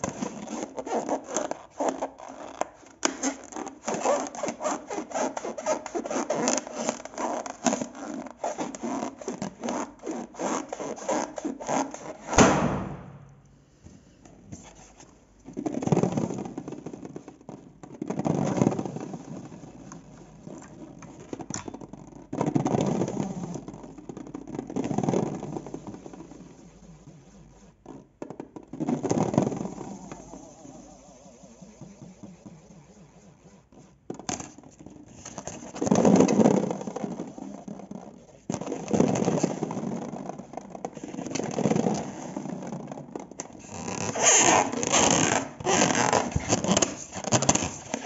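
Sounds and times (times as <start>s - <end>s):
sticky slime being mixed: 0.0s - 12.8s, 15.6s - 48.0s
loud sharp sound: 12.3s - 13.5s.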